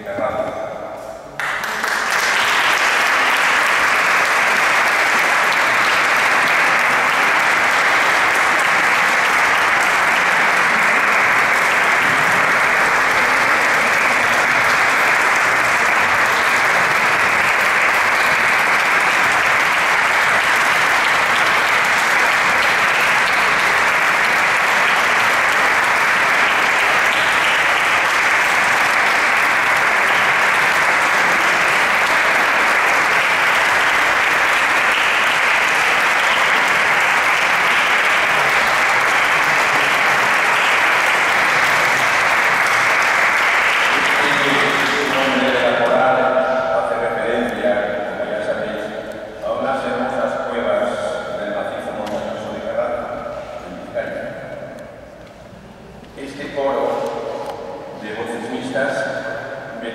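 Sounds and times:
audience applauding: 0:01.4 - 0:46.4.

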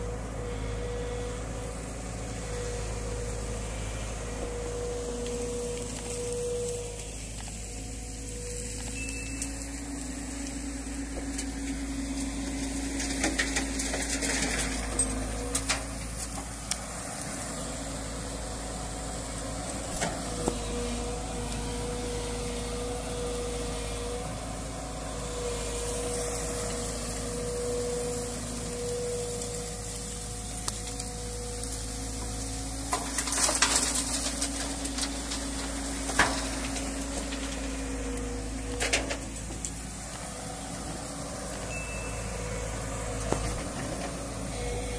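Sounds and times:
excavator engine running: 0:00.0 - 0:44.9.

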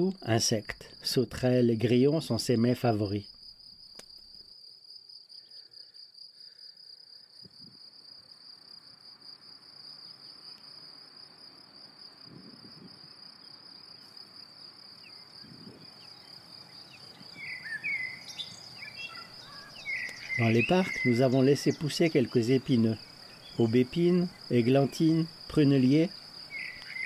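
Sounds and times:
cricket chirring: 0:00.0 - 0:27.0
bird calling: 0:15.1 - 0:24.4, 0:26.5 - 0:27.0.

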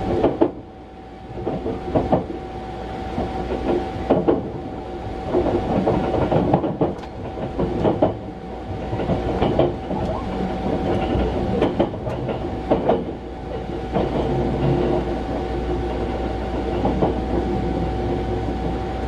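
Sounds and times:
train low rumble: 0:00.0 - 0:19.0
wheels clacking over track: 0:05.3 - 0:18.9.

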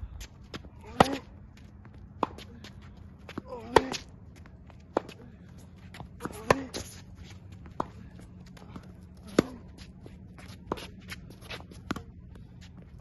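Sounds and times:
footsteps on court: 0:00.2 - 0:13.0
tennis ball struck by racquet: 0:06.2 - 0:06.9, 0:09.2 - 0:09.6.

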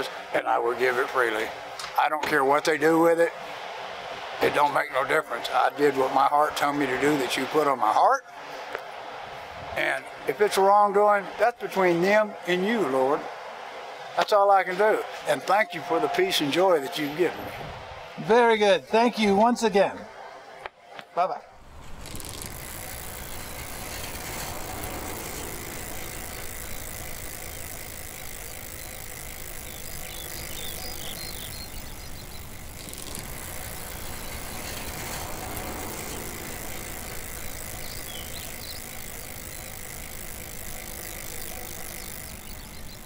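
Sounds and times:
vehicle moving hiss and drone: 0:21.6 - 0:43.0.

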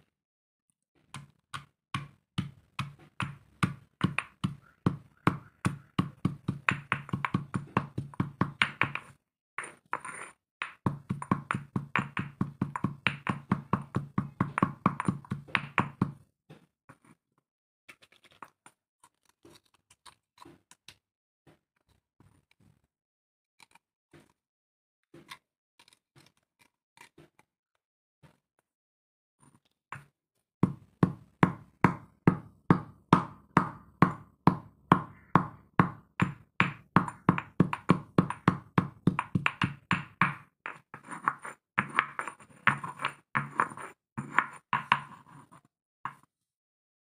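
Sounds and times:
pestle pounding in stone mortar: 0:01.6 - 0:09.1, 0:10.6 - 0:16.2, 0:30.6 - 0:45.0.

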